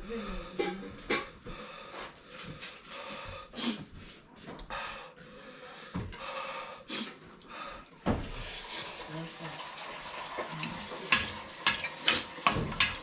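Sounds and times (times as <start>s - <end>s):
puffing breaths: 0.0s - 8.0s.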